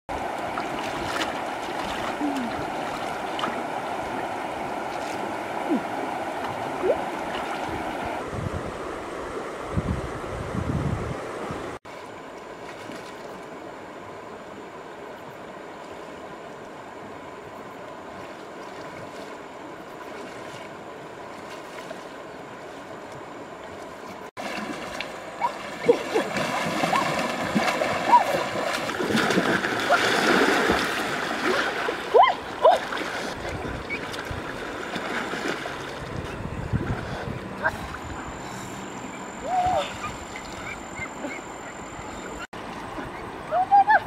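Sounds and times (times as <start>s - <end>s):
soft splashes of wading: 0.1s - 8.2s, 11.9s - 13.6s, 15.8s - 44.0s
water gurgles: 0.1s - 8.2s, 24.4s - 44.0s
river water rushing: 0.1s - 44.0s.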